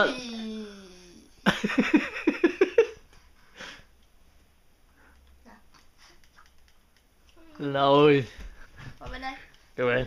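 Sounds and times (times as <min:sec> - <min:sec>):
faint breathing: 0:03.2 - 0:04.0.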